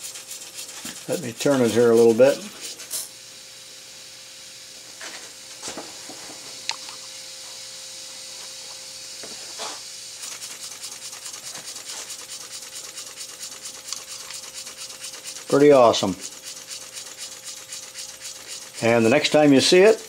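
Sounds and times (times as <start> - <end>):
steam engine chuffing: 0.0 - 3.0, 10.2 - 19.4
steam hissing: 0.0 - 3.8, 9.4 - 20.0.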